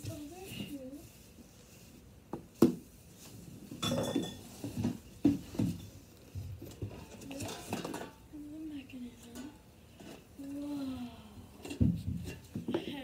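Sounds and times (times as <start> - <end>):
clatter and rustling: 2.5 - 10.6, 11.6 - 13.0.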